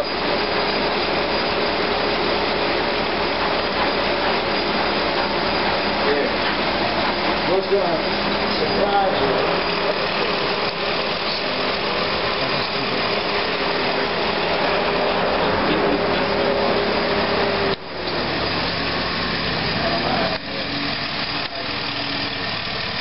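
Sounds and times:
van engine idling: 0.0 - 23.0.

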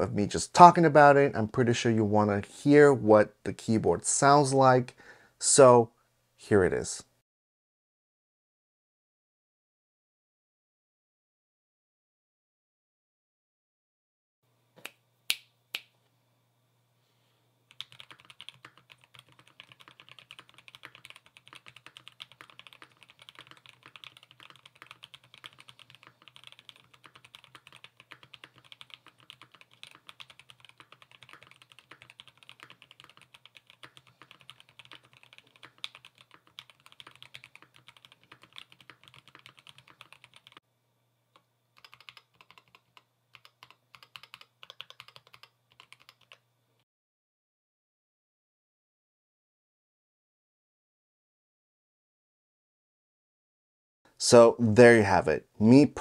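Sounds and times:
mechanical keyboard typing: 17.7 - 40.6, 41.8 - 46.4.

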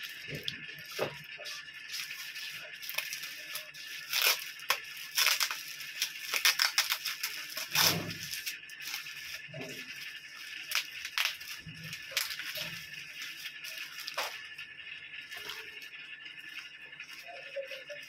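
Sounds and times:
plastic wrap crinkling and tearing: 0.0 - 14.5, 15.3 - 15.9.

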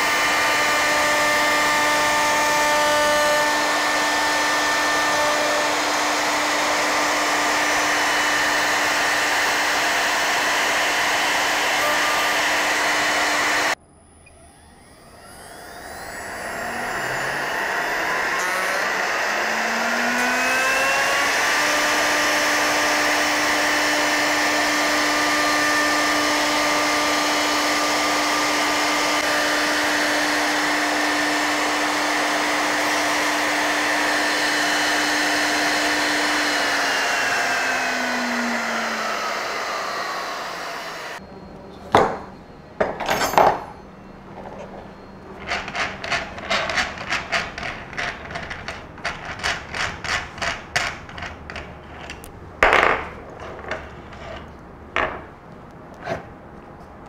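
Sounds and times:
router running: 0.0 - 41.3.

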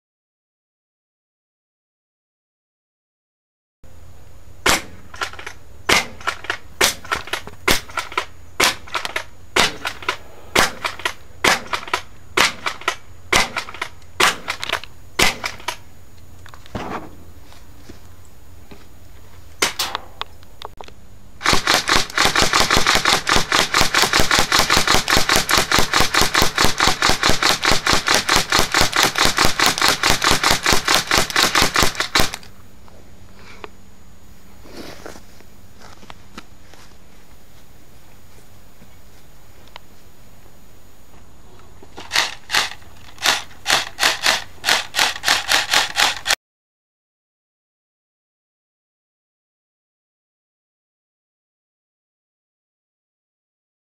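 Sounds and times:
airsoft gun single shots: 4.6 - 15.8, 19.6 - 20.2, 21.4 - 32.4
airsoft gun automatic burst: 21.4 - 32.5, 42.1 - 46.4.

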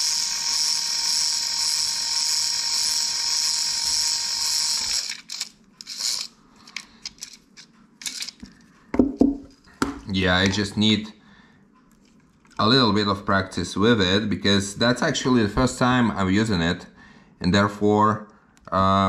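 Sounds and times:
small electric motor whining: 0.0 - 6.8.

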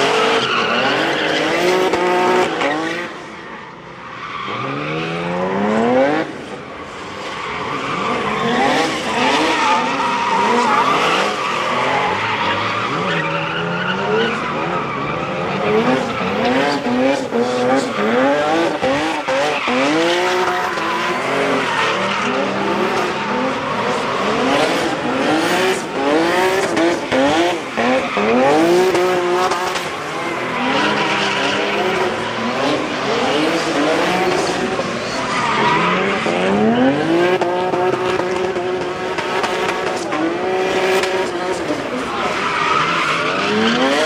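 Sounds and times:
car engines revving: 0.0 - 44.0.

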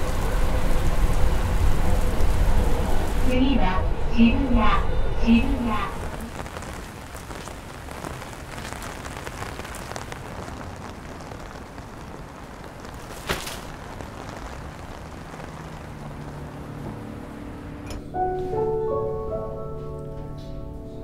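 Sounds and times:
steady rain falling: 0.0 - 18.7
sharp crack: 12.7 - 15.6.

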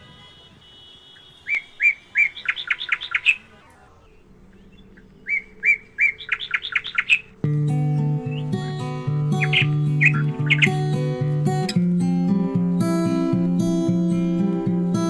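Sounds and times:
bird singing: 1.2 - 11.8.

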